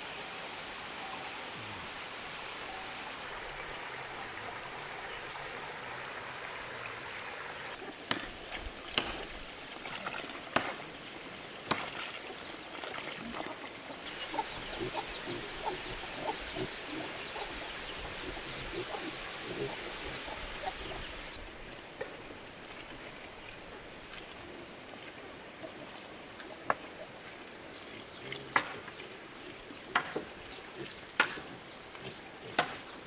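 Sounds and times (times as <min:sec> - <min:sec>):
hen clucking softly: 0:14.1 - 0:21.4.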